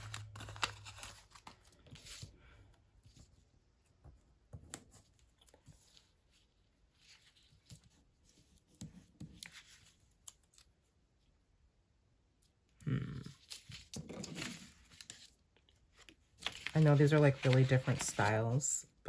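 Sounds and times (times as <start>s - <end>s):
hands rustling on paper pages: 4.7s - 10.6s, 13.4s - 18.7s.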